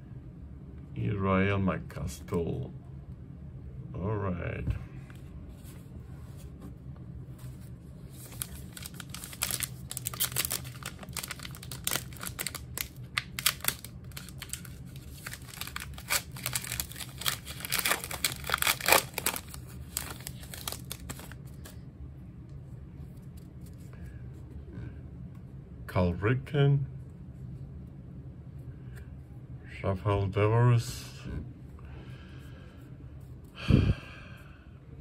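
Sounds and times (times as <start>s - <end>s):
foil wrapper crinkling and tearing: 8.1s - 21.7s.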